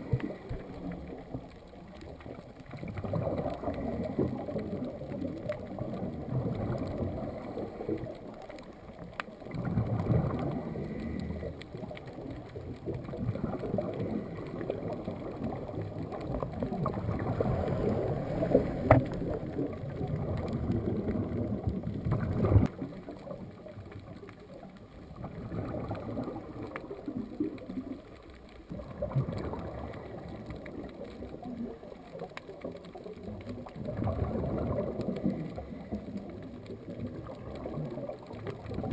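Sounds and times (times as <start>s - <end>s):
underwater regulator bubbles: 0.0s - 38.9s.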